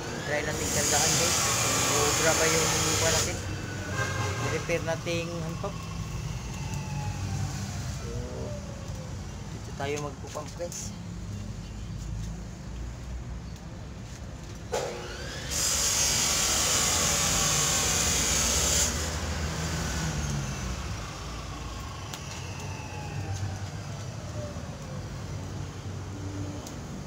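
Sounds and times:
compressed air hissing: 0.4s - 4.8s.

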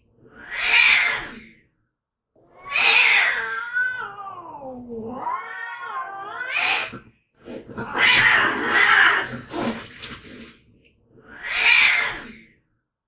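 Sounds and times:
cats screeching: 0.2s - 1.5s, 2.4s - 10.0s, 11.2s - 12.5s
cat yowling: 0.3s - 1.4s, 2.4s - 7.0s, 7.8s - 9.4s, 11.2s - 12.4s.

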